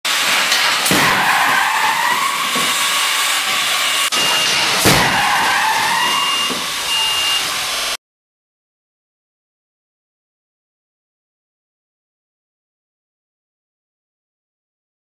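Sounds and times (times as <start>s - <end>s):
sharp car crash: 0.1s - 7.9s
steady loud hiss: 0.1s - 8.0s
tyres screeching sideways: 0.4s - 8.0s.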